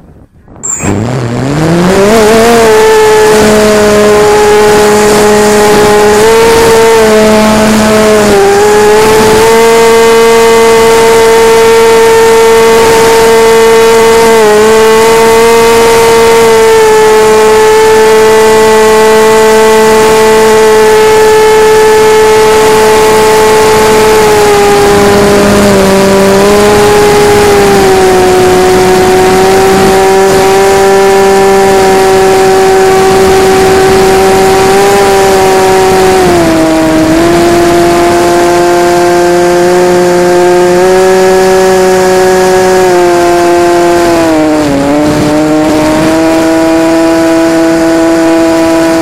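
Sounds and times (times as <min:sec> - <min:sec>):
wind noise on microphone: 0:00.0 - 0:49.0
model plane motor whine: 0:00.6 - 0:49.0.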